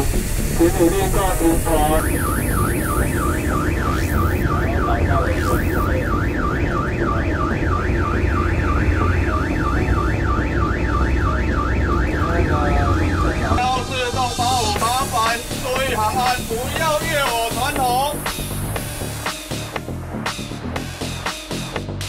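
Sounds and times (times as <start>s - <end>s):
water cannon spraying: 0.0s - 6.0s, 13.7s - 19.3s
electronic siren warbling: 0.0s - 19.2s
steady low rumble: 0.0s - 21.2s.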